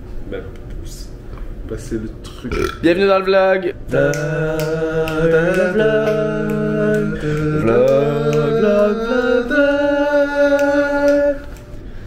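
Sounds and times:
wordless singing in held notes: 3.8 - 12.0.

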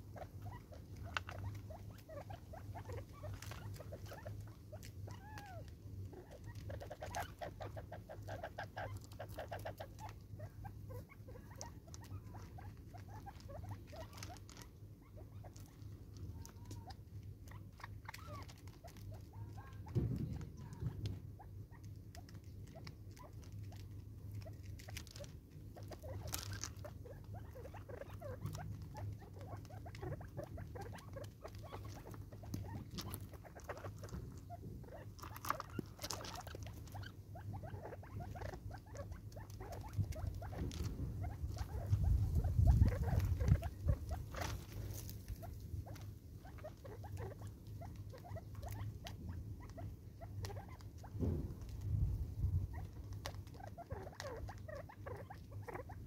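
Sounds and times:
birds pecking in gravel: 0.0 - 56.0
low steady hum: 0.0 - 56.0.

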